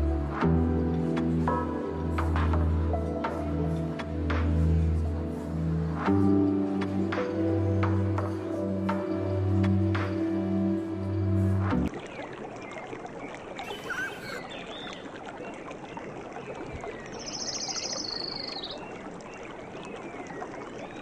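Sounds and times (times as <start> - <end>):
music: 0.0 - 11.9
bird chirps: 13.6 - 15.0, 17.1 - 18.9.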